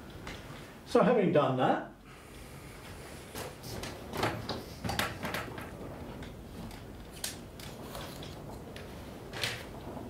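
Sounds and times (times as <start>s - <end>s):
paper blind knocks and rustles: 3.4s - 5.8s.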